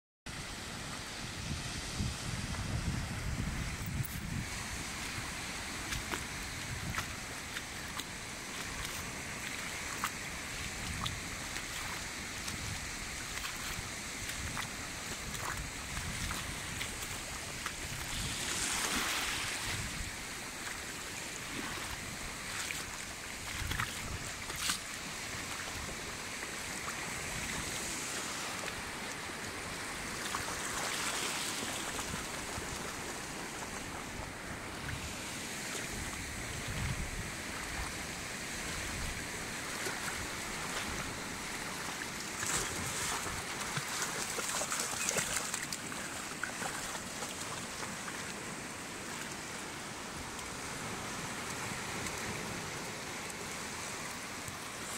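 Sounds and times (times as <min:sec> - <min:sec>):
ocean surf breaking on rocks: 0:00.6 - 0:44.4.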